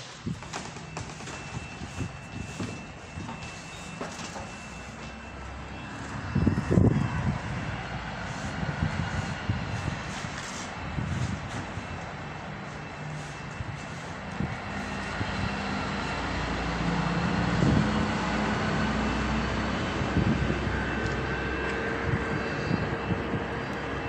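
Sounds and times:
steady engine drone: 0.0s - 24.0s.

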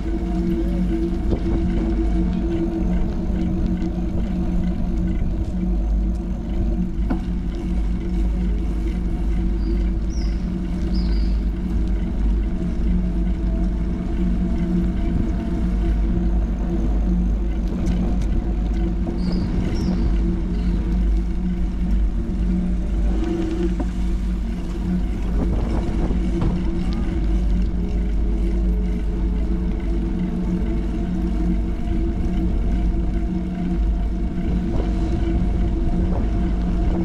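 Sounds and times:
street ambience hum: 0.0s - 37.0s.

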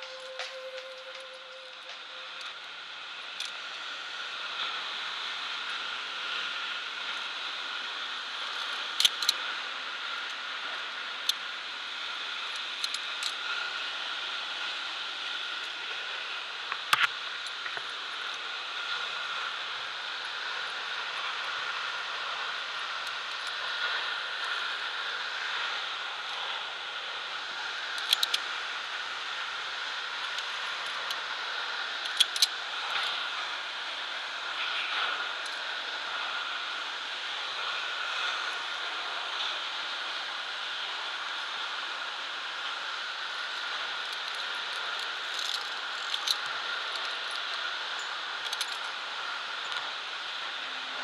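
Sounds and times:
steady rushing hiss: 0.0s - 51.0s
metal clips clinking on cable: 28.0s - 28.4s, 32.0s - 33.1s, 44.1s - 47.6s, 48.4s - 48.9s.

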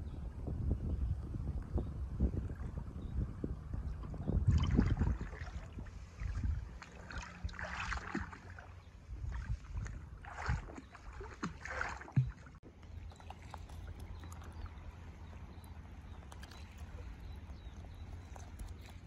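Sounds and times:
water splashing and sloshing: 3.9s - 19.0s.

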